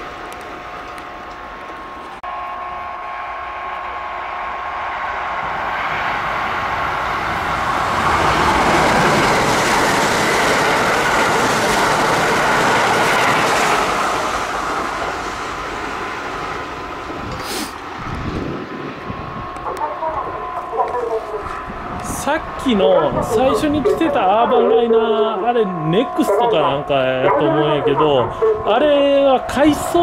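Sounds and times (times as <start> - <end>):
electric train rushing past: 0.0 - 30.0
level-crossing bell ringing: 20.1 - 30.0.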